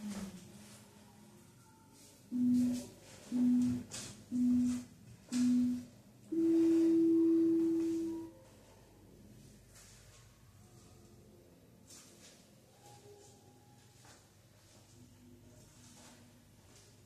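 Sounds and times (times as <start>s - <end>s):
timer beeping: 2.3s - 8.3s.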